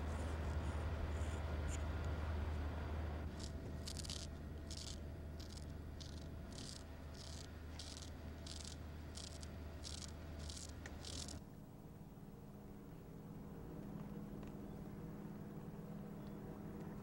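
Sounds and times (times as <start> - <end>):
steady low hum: 0.0 - 17.0
rhythmic dry rattling scraping: 3.3 - 11.4.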